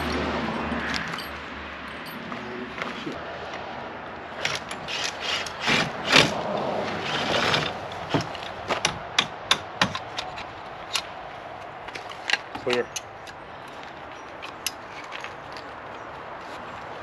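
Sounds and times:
metal clinks and scrapes: 0.8 - 3.1, 11.9 - 16.6.

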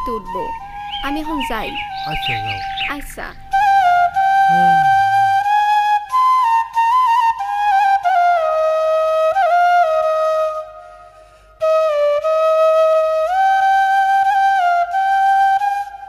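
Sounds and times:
solo flute slow melody: 0.0 - 2.8, 3.5 - 16.0.

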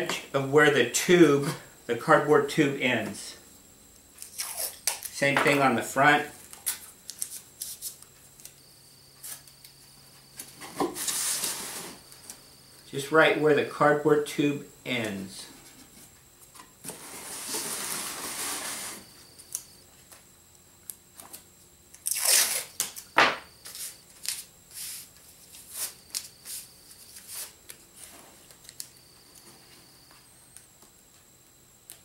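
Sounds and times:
masking tape peeling off roll: 22.0 - 23.0
tape ripping: 22.0 - 23.0.

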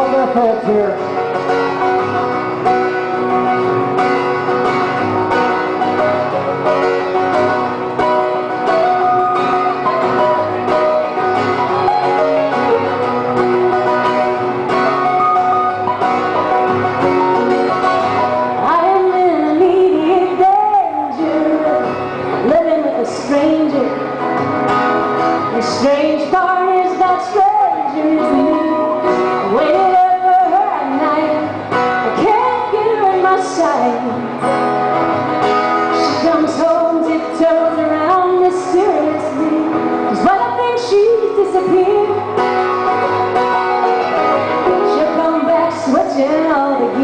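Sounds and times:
woman singing folk song: 0.0 - 1.6, 17.4 - 24.4, 25.2 - 47.0
strummed acoustic guitar: 0.0 - 47.0.

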